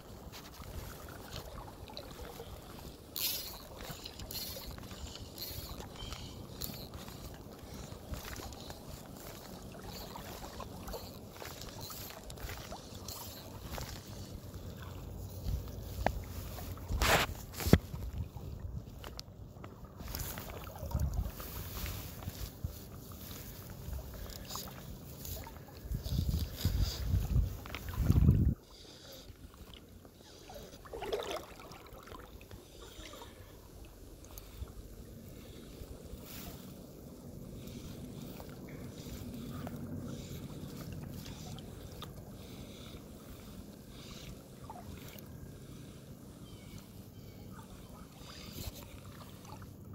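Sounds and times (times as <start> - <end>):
faint creek water: 0.0 - 49.9
faint ticks and swishes: 0.0 - 49.9
flowing stream: 0.0 - 49.9
wind rumble on microphone: 15.1 - 28.7.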